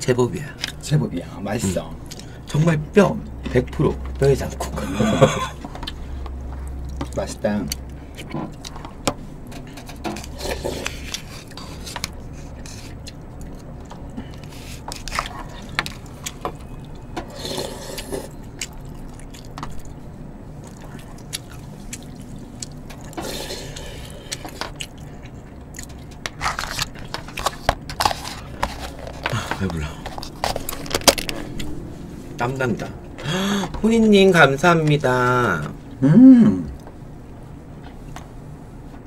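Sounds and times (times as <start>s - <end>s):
low steady hum: 0.0s - 39.0s
slurping and chewing: 9.8s - 20.0s, 20.6s - 31.7s
spoons scraping plastic tubs: 26.2s - 31.4s.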